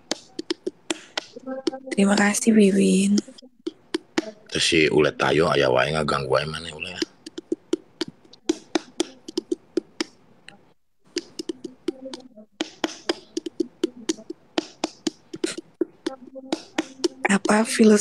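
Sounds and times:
sharp clicks and soft taps: 7.0s - 17.8s.

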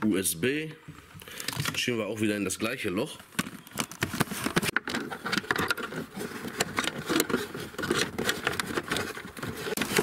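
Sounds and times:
cable rustling and scraping plastic: 3.4s - 10.0s.

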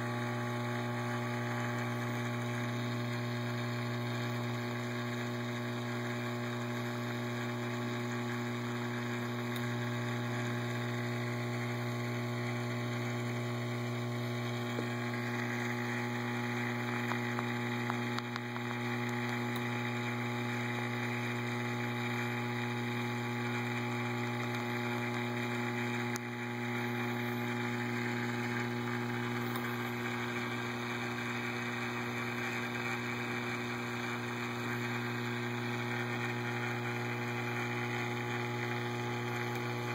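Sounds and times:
water pumps humming: 0.0s - 39.9s.

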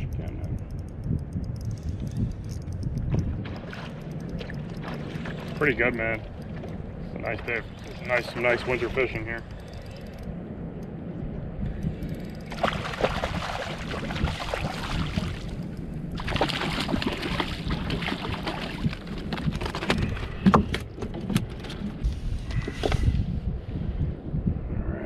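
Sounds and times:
fish splashing in water: 12.5s - 15.6s, 16.2s - 19.1s.

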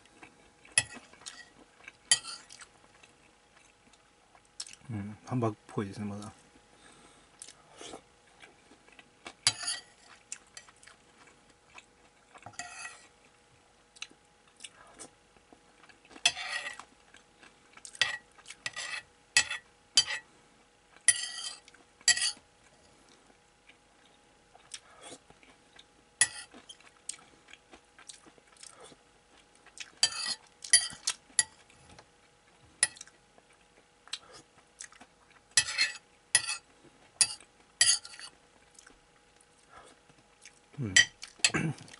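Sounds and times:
metal spoon scraping a ceramic plate: 2.1s - 2.5s, 9.5s - 10.1s, 12.6s - 13.0s, 16.2s - 16.8s, 18.0s - 20.2s, 21.1s - 22.4s, 26.2s - 26.5s, 30.0s - 31.5s, 35.6s - 36.6s, 37.2s - 38.3s.

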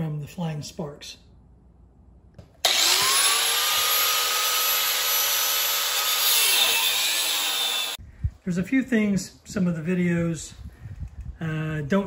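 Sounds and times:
angle grinder grinding metal: 2.6s - 8.0s.

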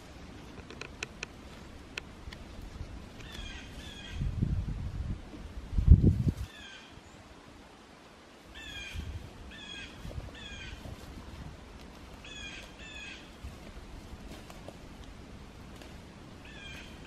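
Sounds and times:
bird calling: 3.2s - 4.3s, 6.4s - 7.2s, 8.5s - 11.0s, 12.2s - 13.4s, 16.4s - 17.0s.

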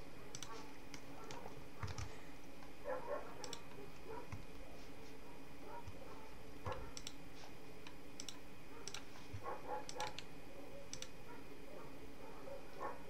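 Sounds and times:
faint steady hum: 0.0s - 13.0s
computer mouse buttons clicking: 0.3s - 2.7s, 3.4s - 4.6s, 6.6s - 7.2s, 7.8s - 10.3s, 10.9s - 11.2s.

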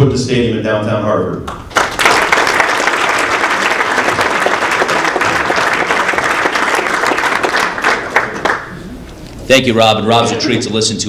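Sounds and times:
audience applauding: 1.5s - 9.0s.

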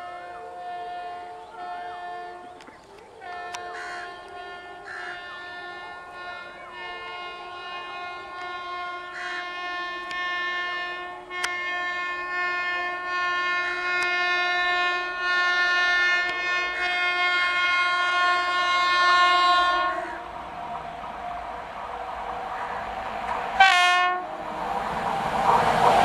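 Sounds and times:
train horn blast: 0.0s - 2.6s, 3.2s - 20.4s, 23.6s - 24.5s
train rushing on rails: 0.0s - 26.0s.

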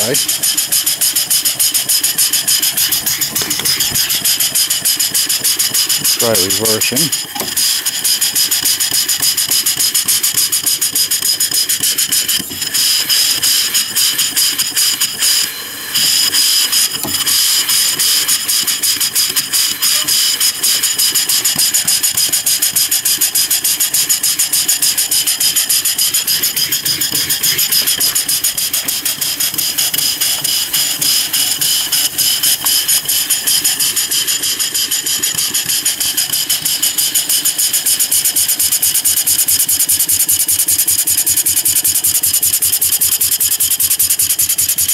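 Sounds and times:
steam engine exhaust beating: 0.0s - 44.9s.

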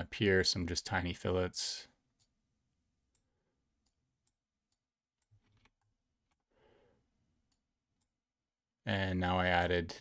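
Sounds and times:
computer mouse clicks: 3.1s - 6.5s.

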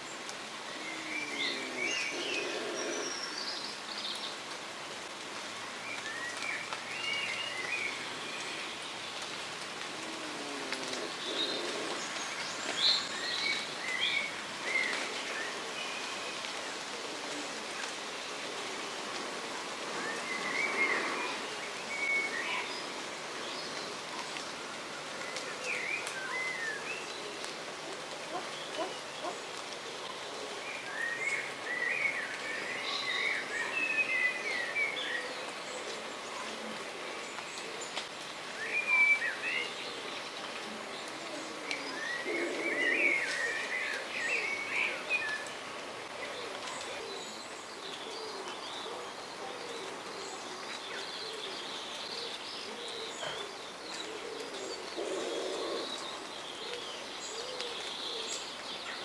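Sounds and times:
low bird calls: 23.6s - 59.0s.

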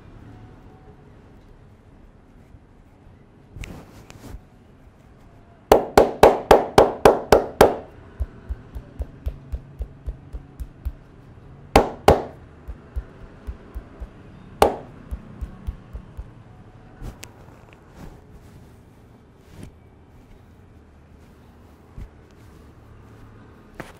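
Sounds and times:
loud hand slaps: 5.7s - 11.0s, 11.8s - 16.3s
light hand taps: 5.7s - 11.2s, 11.8s - 16.4s.

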